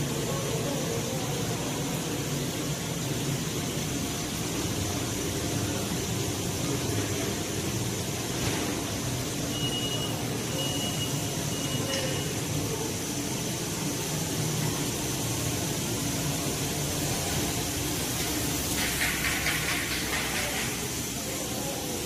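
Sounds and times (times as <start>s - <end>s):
gas hiss: 0.0s - 22.0s
production line machinery running: 0.0s - 22.0s
short high beeps: 9.5s - 12.3s.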